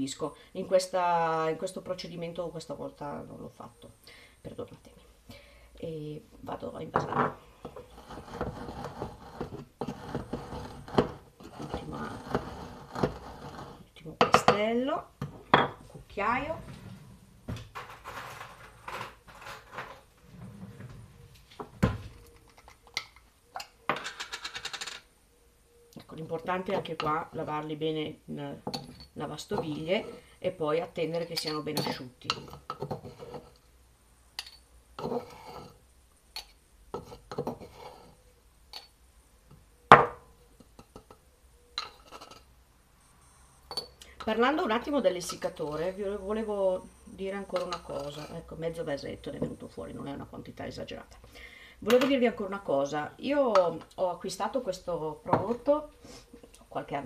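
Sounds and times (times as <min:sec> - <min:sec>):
metal spoon scraping and clinking: 0:31.1 - 0:33.6, 0:34.4 - 0:35.8, 0:41.8 - 0:42.5, 0:47.5 - 0:48.5
spoon and glass jar handled: 0:31.2 - 0:33.6, 0:43.7 - 0:44.3.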